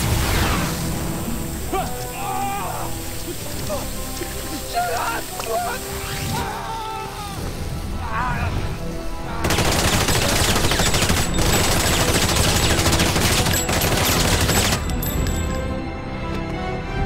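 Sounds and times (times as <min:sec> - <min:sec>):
rapid-fire weapon barrage: 0:09.4 - 0:15.0.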